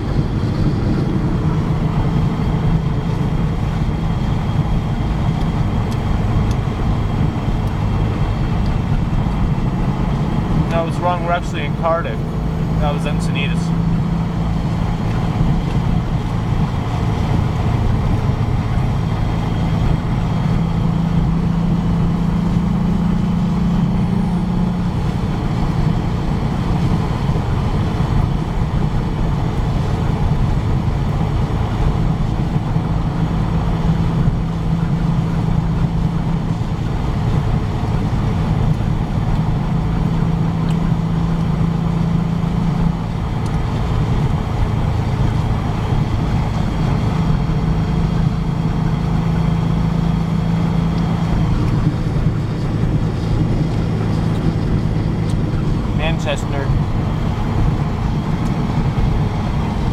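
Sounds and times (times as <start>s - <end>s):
car engine droning inside cabin: 0.0s - 59.9s.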